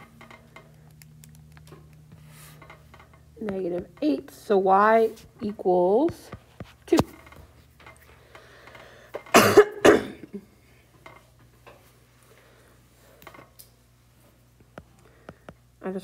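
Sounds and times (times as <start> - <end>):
person coughing: 9.3 - 10.5.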